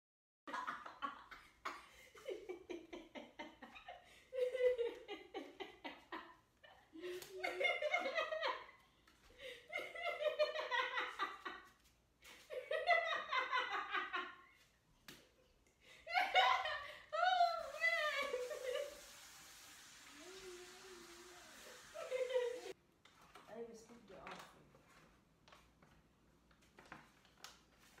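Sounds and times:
woman laughing hard: 0:00.5 - 0:08.8, 0:09.4 - 0:11.7, 0:16.0 - 0:19.1, 0:20.2 - 0:22.8.

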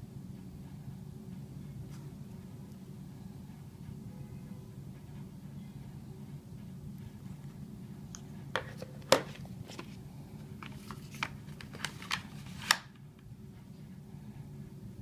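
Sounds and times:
clicks taps and rustles of unboxing: 0:08.6 - 0:13.3.

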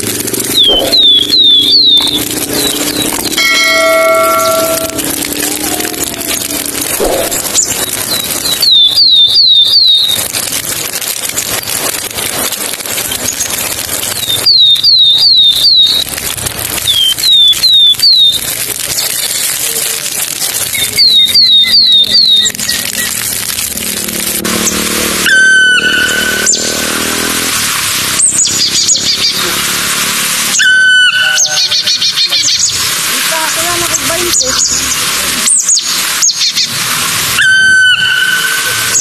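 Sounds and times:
steady outdoor hiss: 0:00.0 - 0:39.0
animal chirping: 0:00.2 - 0:10.3, 0:20.7 - 0:23.4, 0:25.2 - 0:26.8.

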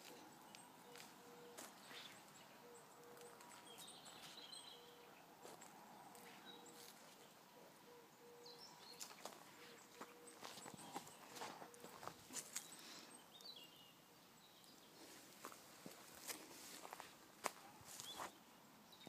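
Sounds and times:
distant bird chirping: 0:00.0 - 0:15.6
footsteps on dry leaves: 0:09.0 - 0:12.8, 0:15.0 - 0:18.4.

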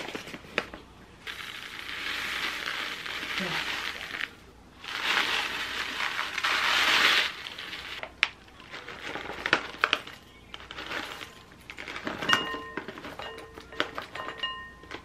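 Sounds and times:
packet crinkling: 0:00.0 - 0:14.2
oats pouring into glass bowl: 0:01.2 - 0:08.0, 0:08.6 - 0:13.2.

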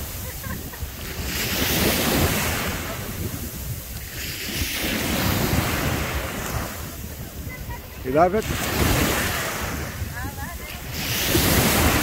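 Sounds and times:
waves washing up sandy beach: 0:00.0 - 0:12.0
wind rumbling on microphone: 0:00.0 - 0:12.0.

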